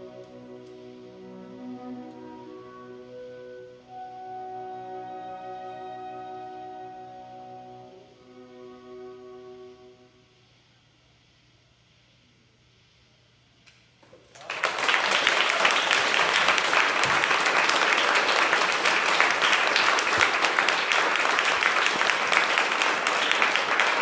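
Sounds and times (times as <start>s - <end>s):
scattered claps: 14.0s - 24.0s
audience applause: 14.2s - 24.0s.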